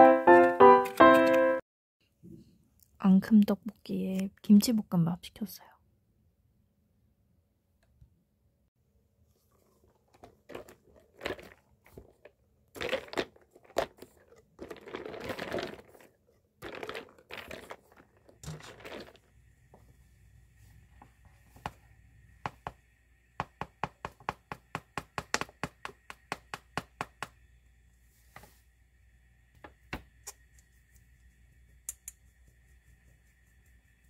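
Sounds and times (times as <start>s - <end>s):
straw stirring ice in glass: 10.3s - 19.3s.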